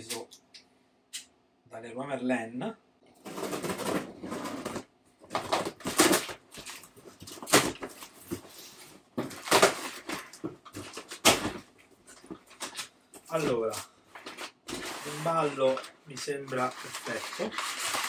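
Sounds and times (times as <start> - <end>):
tape tearing: 3.2 - 8.3, 9.3 - 11.6, 16.5 - 18.0.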